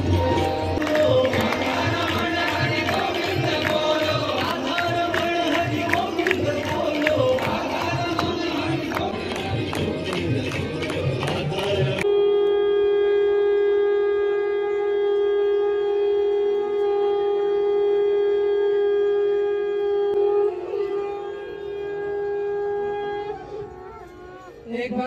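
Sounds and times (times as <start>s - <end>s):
crowd noise: 0.0s - 25.0s
conch shell blown: 12.0s - 24.5s.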